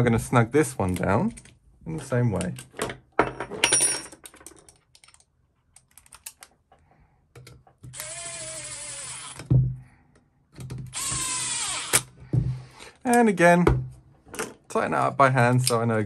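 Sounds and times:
tools being handled clicks: 4.3 - 6.6
impact driver whine: 10.9 - 12.1.

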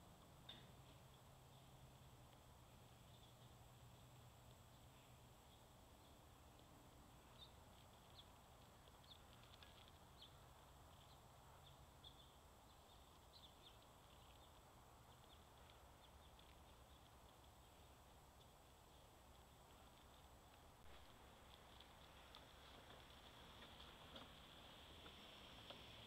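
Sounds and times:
faint outdoor hiss: 0.0 - 26.0
faint high chirps: 2.7 - 19.1.

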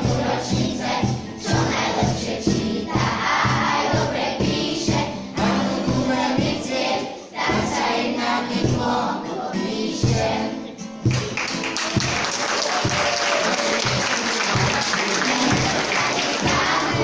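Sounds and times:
children's choir singing: 0.0 - 10.9, 14.2 - 17.0
instrumental accompaniment: 0.0 - 17.0
audience applause: 11.1 - 17.0.

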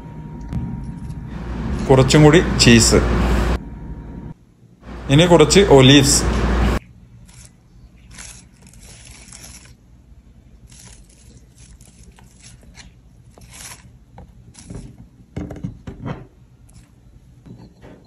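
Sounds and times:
fingers rustling and scraping olives: 7.2 - 9.8, 10.6 - 15.1.

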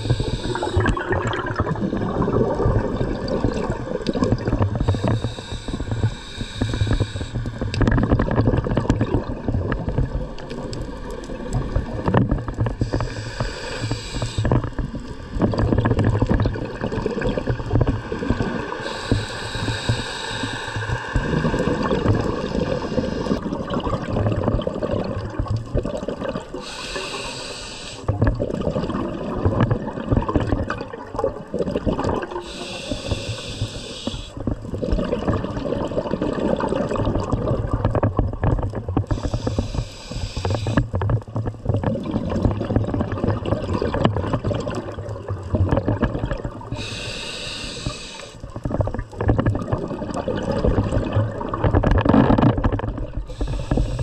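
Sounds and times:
hissing regulator inhalations: 0.0 - 1.6, 4.8 - 7.8, 12.8 - 15.0, 18.7 - 23.6, 26.5 - 28.1, 32.4 - 34.5, 39.0 - 40.9, 46.7 - 48.6, 53.2 - 54.0
gurgling exhale of bubbles: 0.0 - 54.0.

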